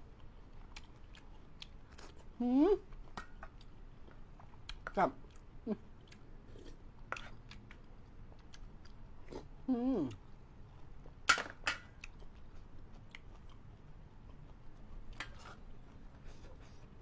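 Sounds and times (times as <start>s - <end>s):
chewing with wet mouth clicks: 0.1s - 9.5s, 11.8s - 16.0s.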